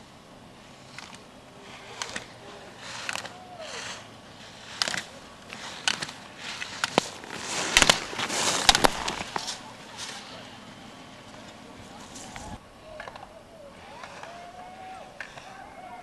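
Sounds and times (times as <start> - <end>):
skis scraping on hard snow: 0.6 - 12.6.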